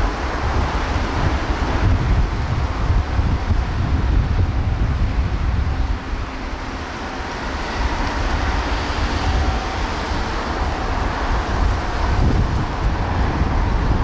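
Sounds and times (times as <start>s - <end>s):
distant machinery hum: 0.0s - 14.0s
wind buffeting microphone: 0.0s - 14.0s.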